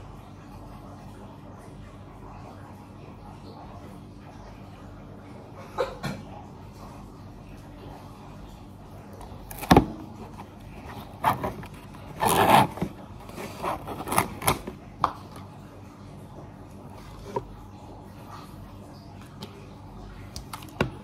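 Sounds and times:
scraping rustle: 10.3s - 14.8s.

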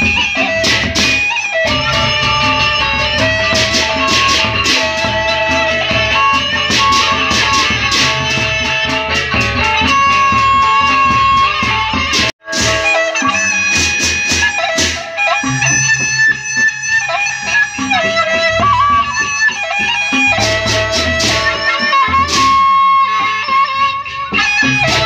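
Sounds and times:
large barrel drums beating: 0.0s - 13.0s
bamboo flute melody: 0.0s - 25.0s.

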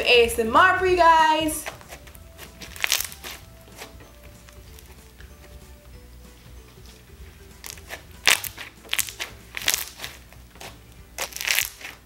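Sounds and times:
crunchy slime crackling: 1.6s - 5.0s, 7.6s - 12.0s.

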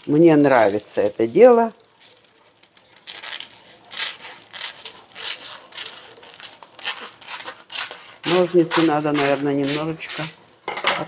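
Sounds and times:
plastic film crinkling: 0.0s - 10.7s
scissors snipping plastic: 2.0s - 10.4s.

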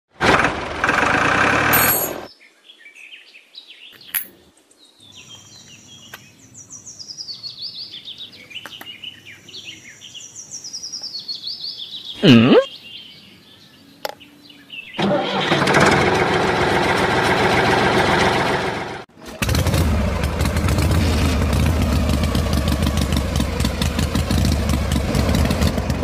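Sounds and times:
birds chirping and trilling: 1.9s - 15.0s.

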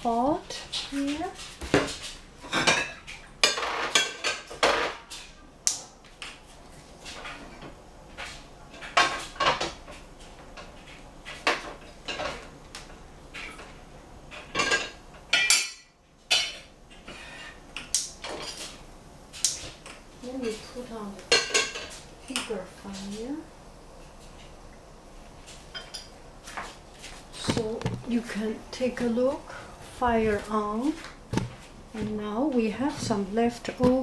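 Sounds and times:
pans clinking on stove grate: 1.8s - 5.3s, 14.3s - 16.7s.

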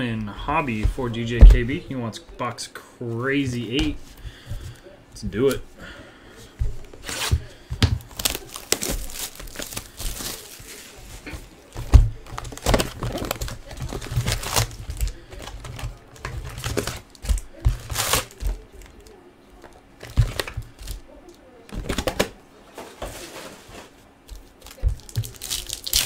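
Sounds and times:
foil packs rustling: 7.0s - 19.2s, 21.8s - 26.0s
plastic shrink wrap crackling: 7.0s - 19.2s, 24.3s - 26.0s.

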